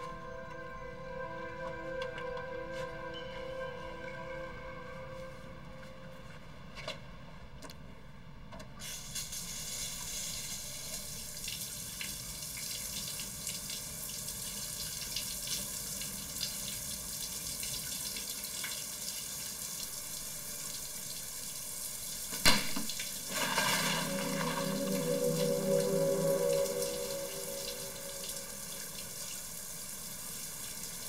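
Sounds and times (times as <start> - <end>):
sustained music tones: 0.0 - 7.2, 23.1 - 30.3
shower running: 8.8 - 31.0.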